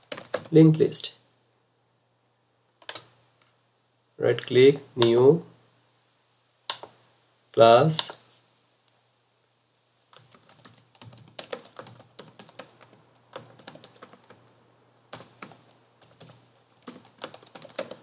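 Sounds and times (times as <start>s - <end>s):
computer keyboard typing: 0.0s - 0.5s, 10.1s - 14.5s, 15.1s - 18.0s.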